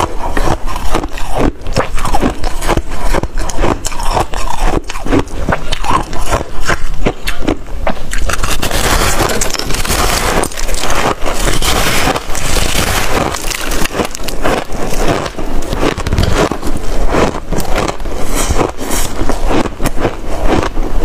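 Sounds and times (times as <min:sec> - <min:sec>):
crunching frost between teeth: 0:00.0 - 0:21.0.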